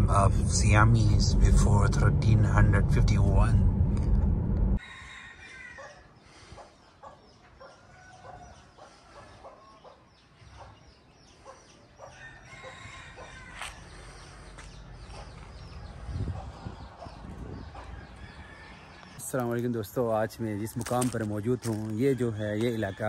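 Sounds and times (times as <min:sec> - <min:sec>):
chickens clucking: 0:05.8 - 0:13.0, 0:14.1 - 0:19.2.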